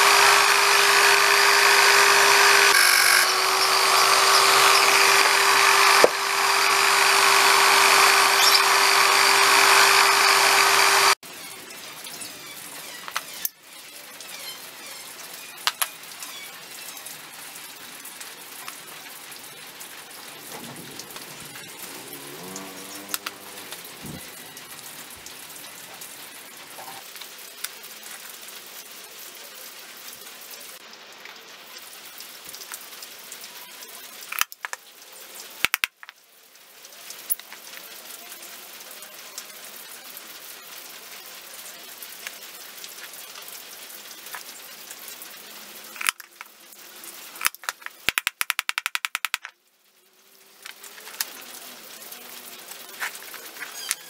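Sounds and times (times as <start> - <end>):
small wooden parts clicking: 0.0 - 11.2, 15.6 - 15.9, 34.3 - 34.8, 35.6 - 36.2, 46.0 - 46.5, 47.4 - 49.5.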